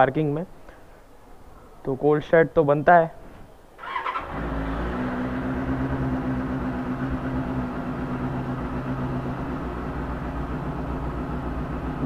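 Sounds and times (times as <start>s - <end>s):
motorcycle engine idling: 3.9s - 12.0s.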